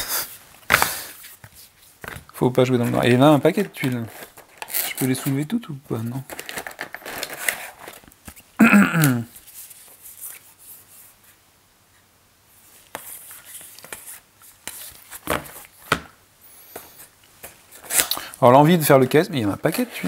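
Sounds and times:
cardboard tiles clicking and rustling: 0.7 - 5.4, 6.0 - 8.4.

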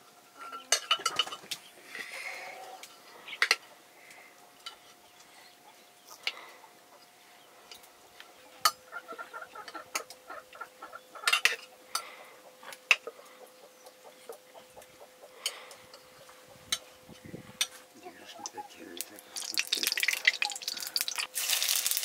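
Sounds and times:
hen clucking: 8.0 - 21.2.

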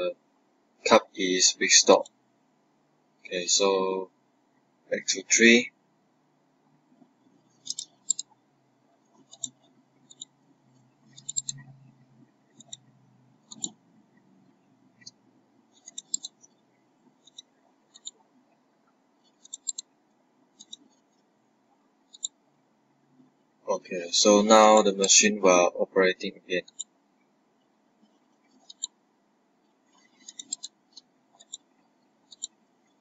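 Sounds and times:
faint low hum: 0.0 - 33.0
mouse buttons clicking: 7.6 - 8.4, 9.2 - 10.4, 11.1 - 11.7, 12.6 - 13.8, 15.8 - 16.4, 17.2 - 18.2, 19.4 - 19.8, 20.6 - 20.9, 22.1 - 22.3, 26.6 - 26.9, 28.6 - 28.9, 30.2 - 31.6, 32.3 - 32.5.

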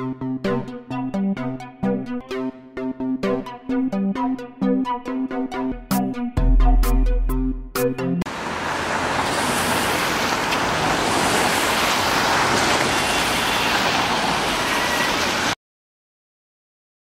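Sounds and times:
cars passing on wet road: 8.3 - 15.6.

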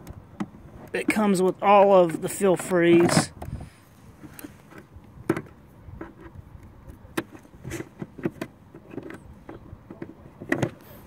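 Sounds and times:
hard plastic knocks and clicks: 0.0 - 1.2, 4.2 - 6.3, 6.9 - 10.9.

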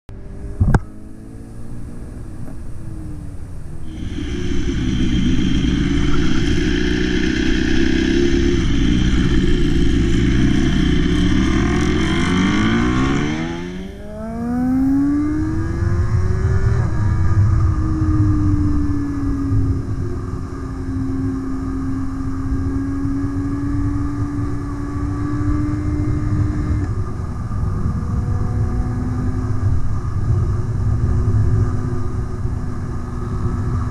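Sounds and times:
motorcycle engine: 0.1 - 33.9
wind rush: 3.6 - 24.8.

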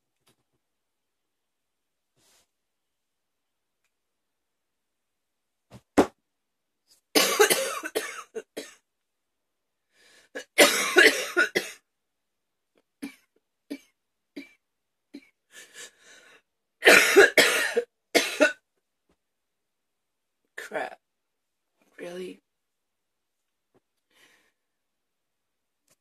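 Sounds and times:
woman coughing hard: 7.2 - 8.8, 10.4 - 11.8, 16.8 - 18.6.

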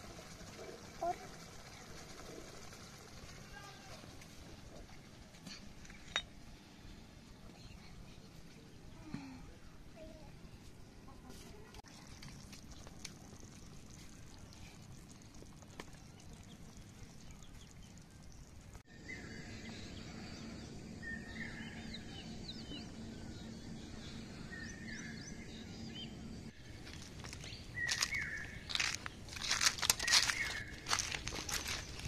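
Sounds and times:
steady low hum: 12.2 - 32.0.

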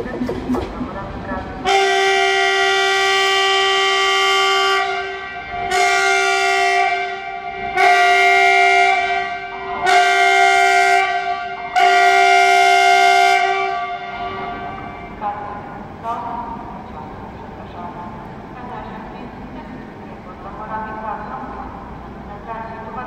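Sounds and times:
train horn long blasts: 1.6 - 15.2.

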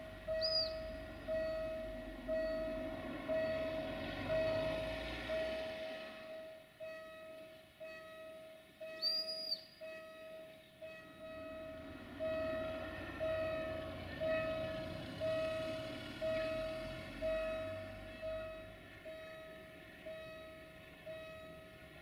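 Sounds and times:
high whistle: 0.3 - 0.9, 8.9 - 10.3.

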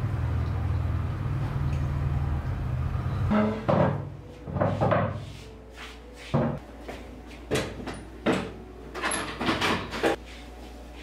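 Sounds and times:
wooden chairs knocking and bumping: 3.4 - 5.3.

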